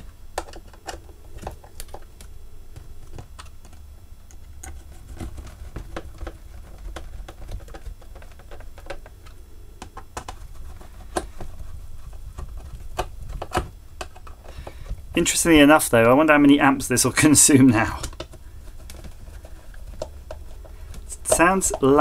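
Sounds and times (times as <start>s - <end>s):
small plastic parts clicking: 0.0s - 15.0s
low steady hum: 0.0s - 22.0s.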